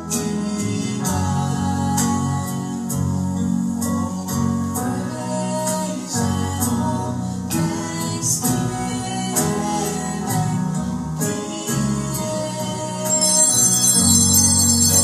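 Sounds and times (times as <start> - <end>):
hymn singing: 0.0 - 15.0
altar bells ringing: 13.1 - 15.0.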